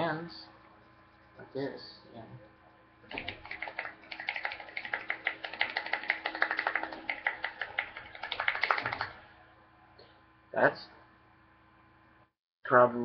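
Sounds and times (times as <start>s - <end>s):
hands clapping quickly: 3.1s - 9.2s.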